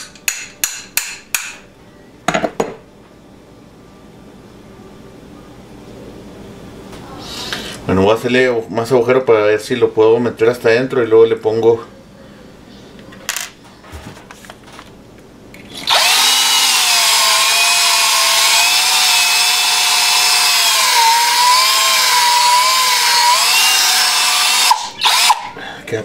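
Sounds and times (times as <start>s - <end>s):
electric drill whining: 15.7s - 25.6s.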